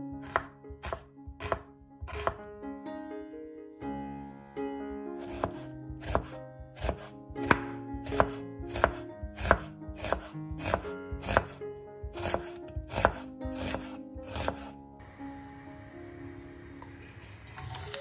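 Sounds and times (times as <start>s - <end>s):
knife slicing onion on board: 0.2s - 2.4s, 5.2s - 14.8s.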